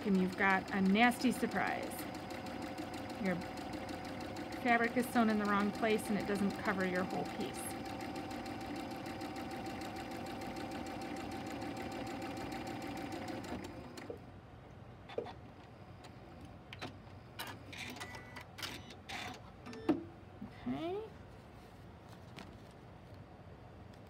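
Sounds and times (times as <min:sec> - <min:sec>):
sewing machine stitching: 0:00.0 - 0:14.2.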